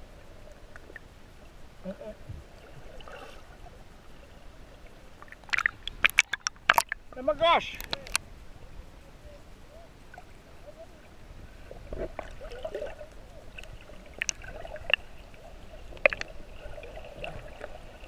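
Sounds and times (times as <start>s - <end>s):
muffled underwater sloshing: 0.0s - 18.0s
sharp clicks: 7.8s - 8.2s.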